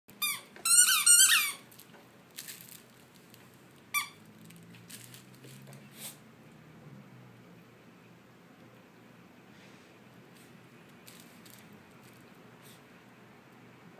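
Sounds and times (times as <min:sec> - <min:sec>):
puppies squeaking: 0:00.2 - 0:01.6.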